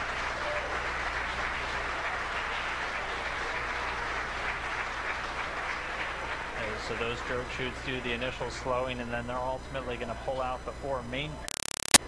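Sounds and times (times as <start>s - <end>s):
crowd applauding: 0.0s - 8.5s
crowd cheering: 0.0s - 9.0s.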